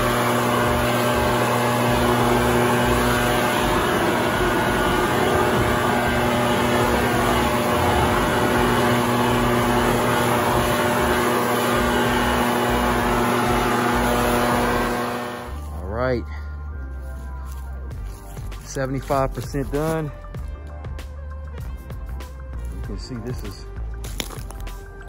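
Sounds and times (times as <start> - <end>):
leaf blower running: 0.0 - 15.9, 17.1 - 20.1.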